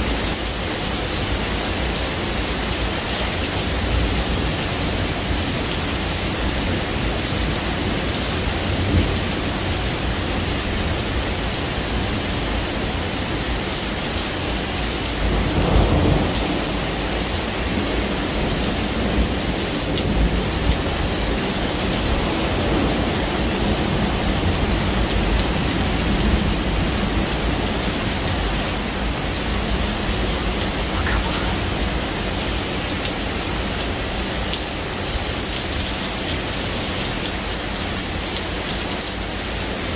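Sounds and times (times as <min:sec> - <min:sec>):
steady rain falling: 0:00.0 - 0:39.9
thunder rumbling: 0:28.9 - 0:33.0.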